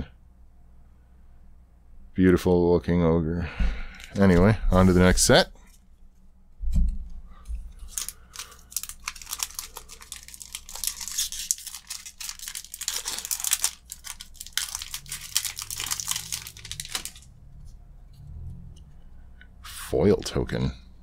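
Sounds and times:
foil wrapper tearing and crinkling: 0:07.7 - 0:17.3.

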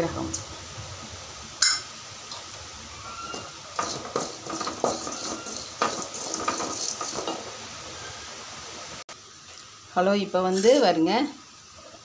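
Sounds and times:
wooden spatula scraping metal pan: 0:03.4 - 0:07.5.

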